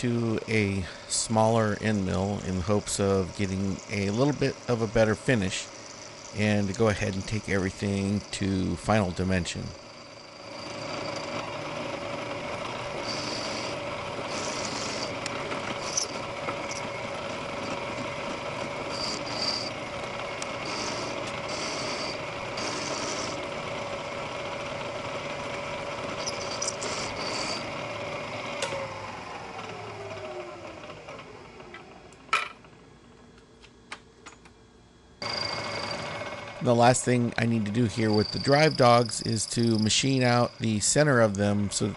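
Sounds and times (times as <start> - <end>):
milling machine running: 0.0 - 32.1, 35.2 - 37.2, 37.9 - 41.9
end mill squealing: 1.8 - 12.0, 12.7 - 18.1, 18.7 - 19.8, 20.6 - 23.4, 26.1 - 27.8, 37.9 - 41.0.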